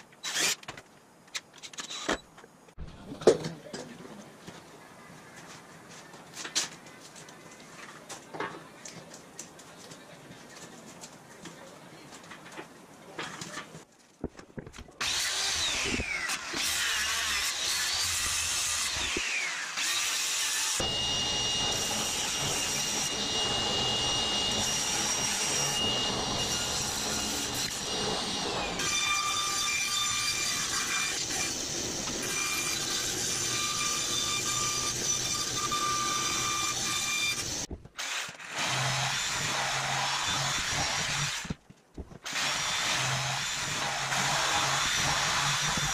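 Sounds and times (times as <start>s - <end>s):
table saw whining: 15.0s - 41.5s
jigsaw cutting board: 42.2s - 45.9s.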